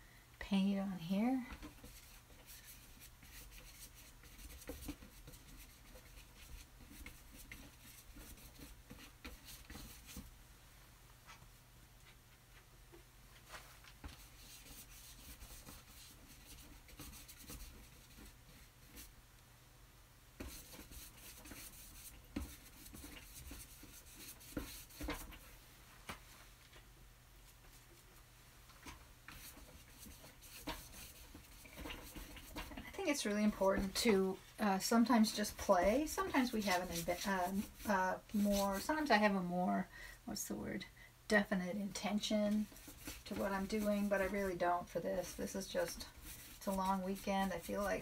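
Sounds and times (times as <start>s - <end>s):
paintbrush scratchy strokes: 1.5s - 10.3s, 13.5s - 19.1s, 20.4s - 25.4s, 29.3s - 34.2s, 34.8s - 39.2s, 42.2s - 48.0s.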